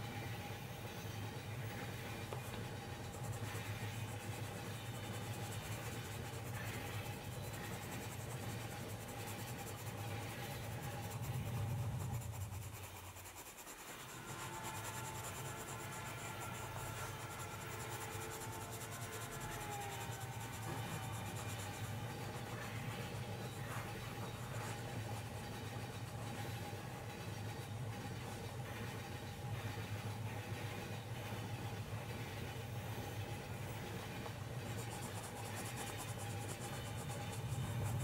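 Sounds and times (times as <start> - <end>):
pencil scratching on paper: 1.2 - 38.0.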